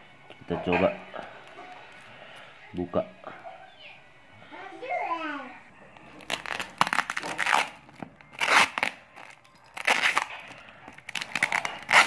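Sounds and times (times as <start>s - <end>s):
plastic wrapping crinkling: 6.0s - 12.0s.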